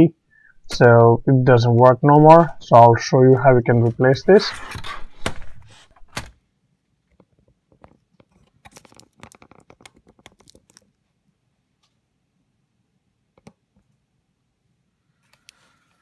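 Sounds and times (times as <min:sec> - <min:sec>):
laptop handling clicks and rustles: 0:07.2 - 0:10.9.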